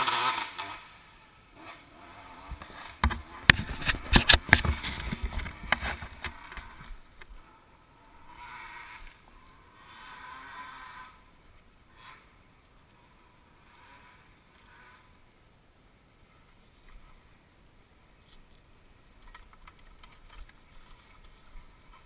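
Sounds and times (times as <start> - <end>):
faint hum: 0.8 - 22.0
dirt bike clattering on rocks: 2.5 - 7.3.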